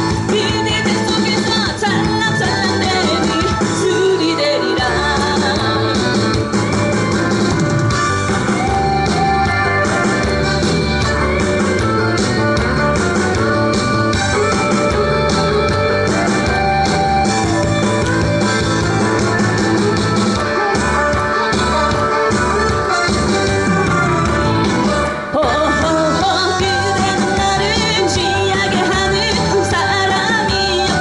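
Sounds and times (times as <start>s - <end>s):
woman singing: 0.0s - 6.4s, 25.2s - 31.0s
backing track with steady beat: 0.0s - 31.0s.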